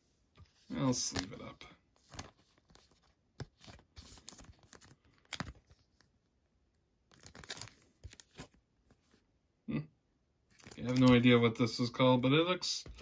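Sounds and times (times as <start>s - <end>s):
plastic card sleeve crinkling: 0.5s - 6.1s, 7.1s - 9.0s, 10.5s - 11.6s.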